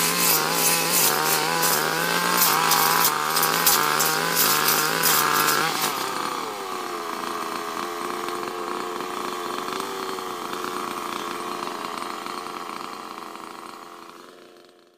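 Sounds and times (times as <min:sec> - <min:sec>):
brush cutter engine running: 0:00.0 - 0:14.9.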